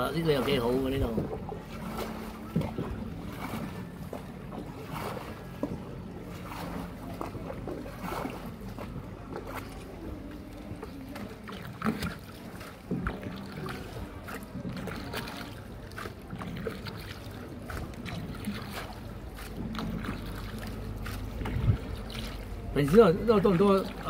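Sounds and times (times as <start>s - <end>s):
boat engine humming: 0.0s - 24.0s
water splashing: 0.0s - 24.0s
small clicks from boat: 0.3s - 24.0s.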